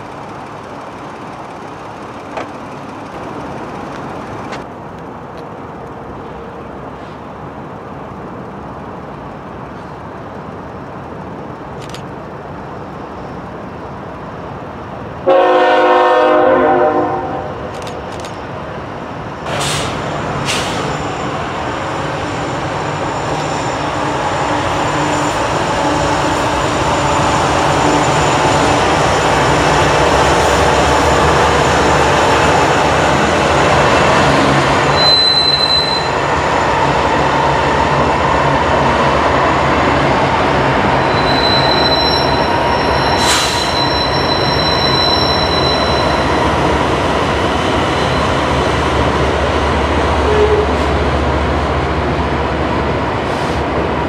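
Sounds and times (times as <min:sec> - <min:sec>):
train rumbling and rattling: 0:00.0 - 0:54.0
high-pitched wheel squeals: 0:34.9 - 0:36.3, 0:40.9 - 0:46.4, 0:50.2 - 0:50.9.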